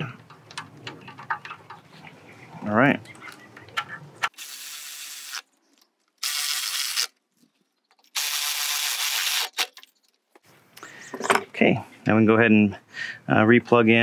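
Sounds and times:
electric ratchet running: 0:06.2 - 0:07.1.

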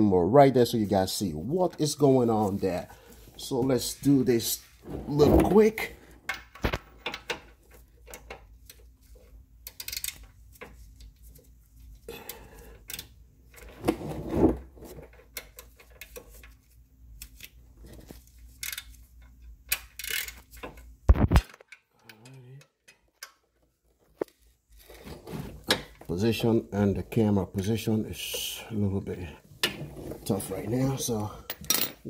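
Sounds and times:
low steady hum: 0:00.0 - 0:21.4.

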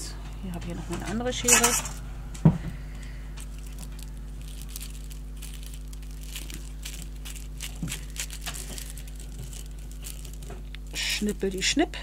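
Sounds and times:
cling film crinkling: 0:03.0 - 0:11.7.

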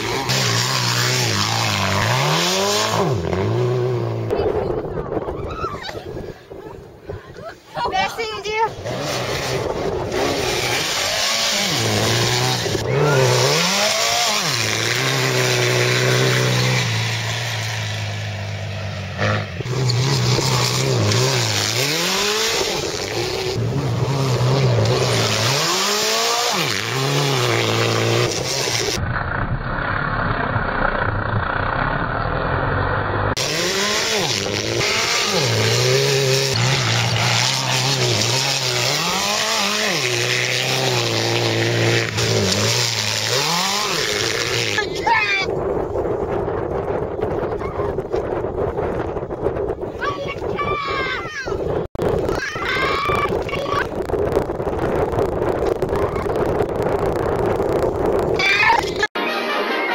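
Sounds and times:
engine revving hard: 0:00.0 - 0:04.3, 0:08.8 - 0:29.0, 0:31.7 - 0:45.1.

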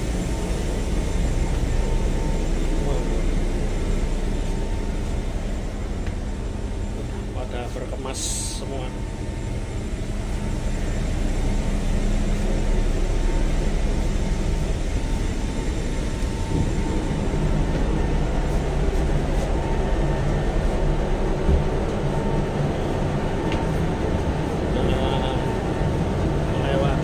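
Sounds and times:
ship machinery rumbling: 0:00.0 - 0:27.0.

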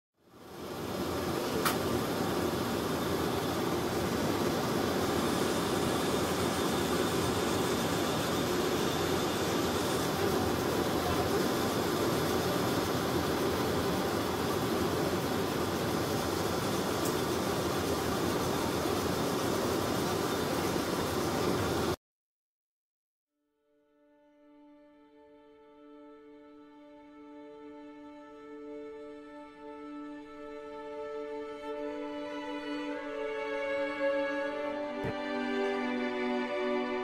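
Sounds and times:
laser engraver whirring: 0:00.7 - 0:22.0.

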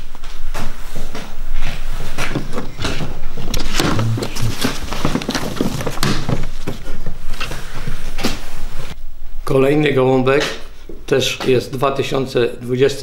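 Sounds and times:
paper rustling: 0:00.1 - 0:09.0.

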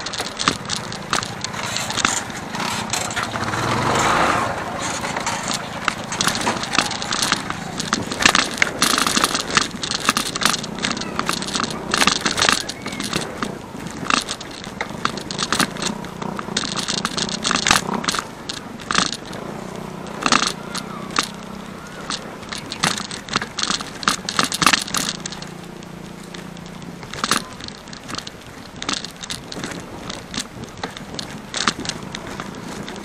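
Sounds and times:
bike rattling over dirt road: 0:00.0 - 0:33.0
low engine hum: 0:00.0 - 0:33.0.

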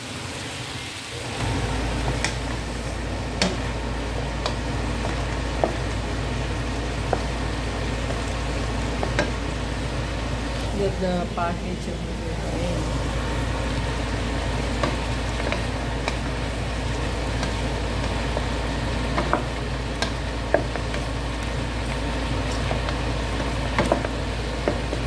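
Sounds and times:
bones sizzling in oil: 0:00.0 - 0:25.0
steady low hum: 0:01.4 - 0:25.0
wooden spoon clicking on pan: 0:03.4 - 0:03.7, 0:04.3 - 0:06.0, 0:07.0 - 0:07.4, 0:08.9 - 0:09.4, 0:14.7 - 0:16.4, 0:17.3 - 0:21.1, 0:22.5 - 0:25.0.

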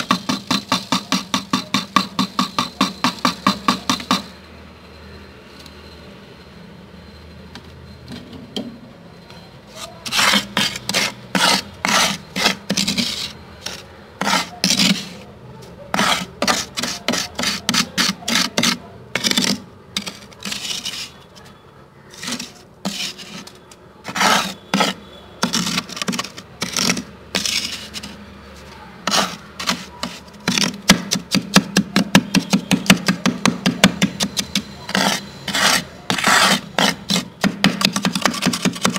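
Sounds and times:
plastic scoop scraping frost: 0:09.7 - 0:15.3, 0:15.9 - 0:21.3, 0:22.1 - 0:31.3, 0:34.2 - 0:38.9.

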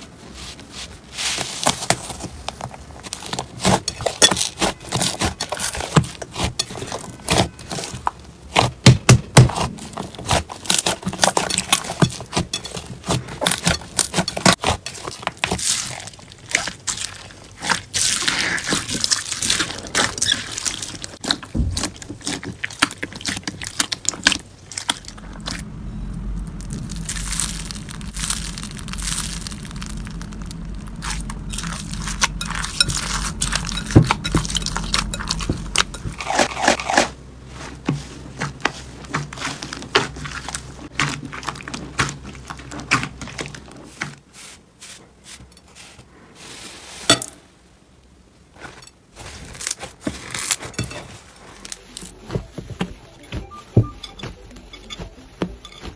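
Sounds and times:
slime squishing and crackling: 0:01.1 - 0:25.7, 0:26.3 - 0:44.0
low hum: 0:24.0 - 0:37.6.

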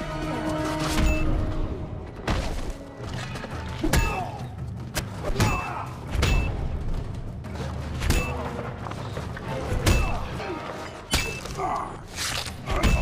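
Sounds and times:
action music score: 0:00.0 - 0:13.0.

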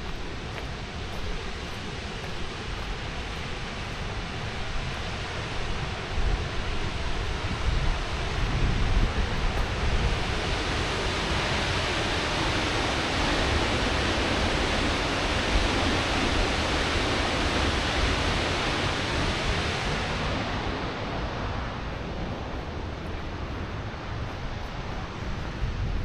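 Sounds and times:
waterfall rushing: 0:06.6 - 0:22.4.

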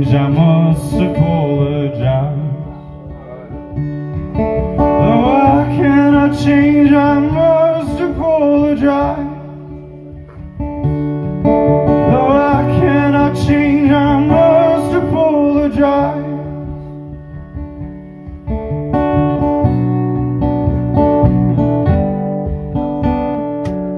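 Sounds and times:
man singing a ballad: 0:00.0 - 0:03.8, 0:04.8 - 0:10.0, 0:11.9 - 0:17.0
strummed acoustic guitar: 0:00.0 - 0:23.9.

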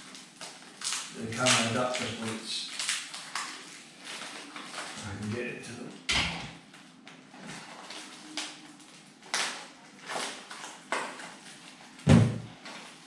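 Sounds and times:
cardboard and plastic rustling: 0:00.0 - 0:13.0
thump: 0:12.1 - 0:12.4.

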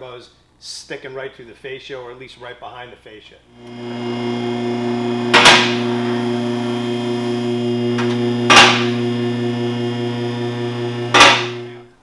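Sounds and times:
hydraulic pump motor humming: 0:03.6 - 0:12.0.

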